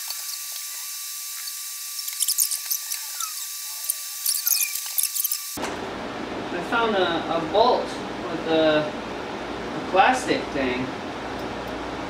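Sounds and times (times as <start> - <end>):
thin steady whine: 0.0 - 5.8.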